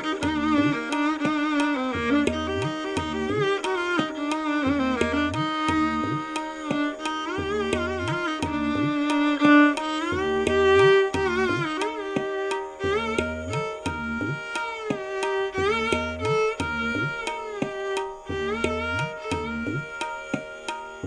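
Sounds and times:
tabla rhythm: 0.0s - 21.0s
violin melody: 0.0s - 21.0s.

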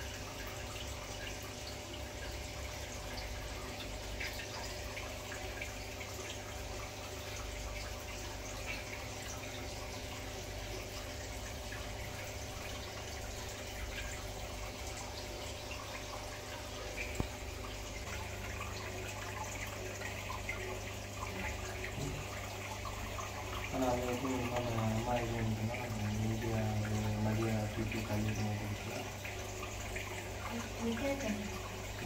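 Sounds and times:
water trickling and dripping: 0.0s - 32.0s
person speaking: 23.7s - 29.1s.

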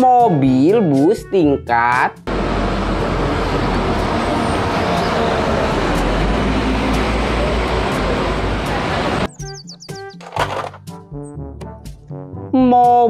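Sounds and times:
bus engine and road noise: 2.2s - 11.0s.

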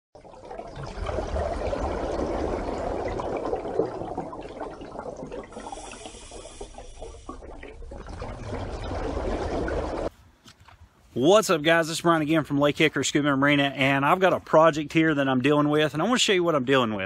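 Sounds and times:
water rushing and splashing: 0.6s - 10.1s.

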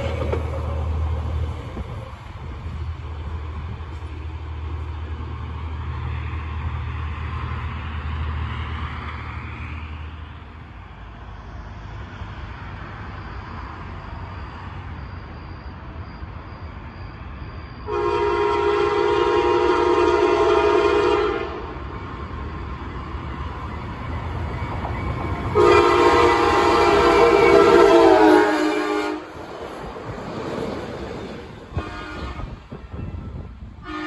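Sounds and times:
train horn chord: 17.9s - 21.8s, 25.5s - 29.3s, 31.7s - 34.0s.

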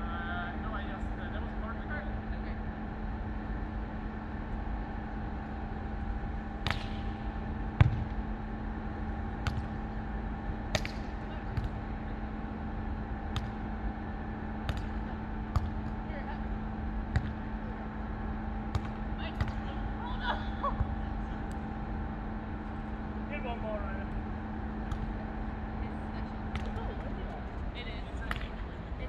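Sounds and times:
steady background hum: 0.0s - 29.0s
volleyball slaps: 6.6s - 8.2s, 9.4s - 10.0s, 10.6s - 11.9s, 13.3s - 13.7s, 14.6s - 16.0s, 17.0s - 17.6s, 18.7s - 19.8s, 24.8s - 25.2s, 26.5s - 26.9s, 28.2s - 28.6s.

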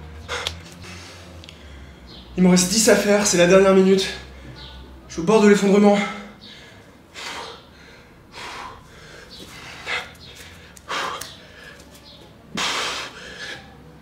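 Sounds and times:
man breathing hard: 0.2s - 2.3s, 6.0s - 11.9s, 12.5s - 14.0s.

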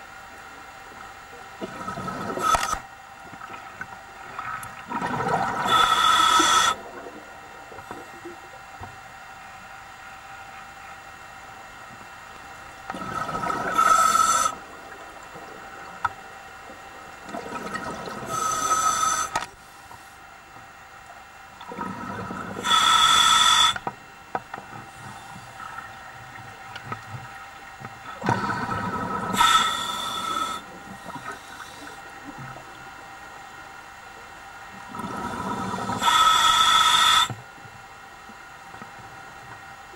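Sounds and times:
diver breathing through regulator: 5.5s - 6.9s, 13.0s - 14.6s, 18.2s - 20.2s, 21.8s - 23.9s, 28.3s - 32.1s, 35.0s - 37.4s
exhaust bubbles: 28.2s - 29.5s.

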